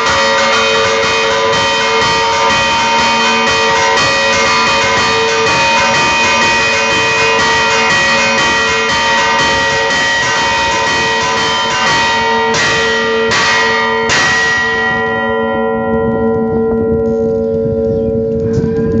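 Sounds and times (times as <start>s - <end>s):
church bells ringing: 0.0s - 19.0s.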